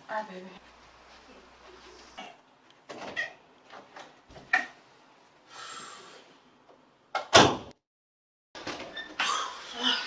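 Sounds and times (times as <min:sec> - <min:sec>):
door shutting with sharp knock: 0:07.2 - 0:07.7.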